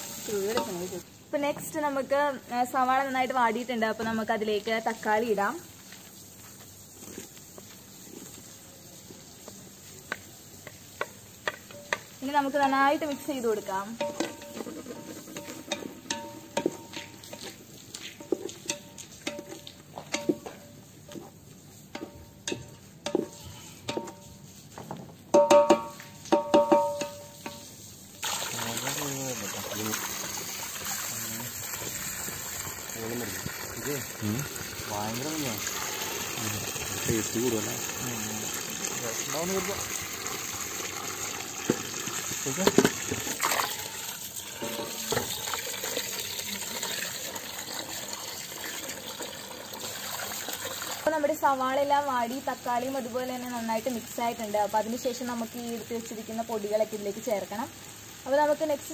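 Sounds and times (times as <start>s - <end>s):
hose water pouring into pot: 0.0s - 1.0s, 12.2s - 20.9s, 27.0s - 58.9s
spatula knocking metal pot: 10.6s - 12.2s, 13.0s - 17.5s, 18.2s - 20.7s, 21.9s - 24.4s, 25.3s - 27.7s, 44.6s - 45.4s.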